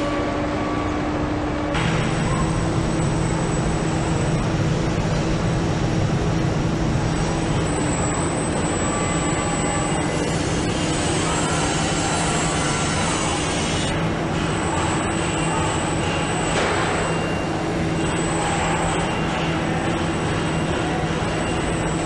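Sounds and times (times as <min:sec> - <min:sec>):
factory machinery running: 0:00.0 - 0:22.0.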